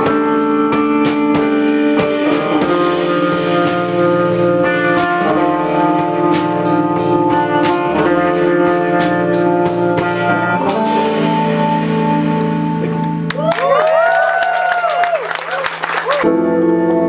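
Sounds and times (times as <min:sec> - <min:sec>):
drum and cymbal hits: 0:00.0 - 0:13.5
electric guitar and bass chords: 0:00.0 - 0:14.6, 0:16.1 - 0:17.0.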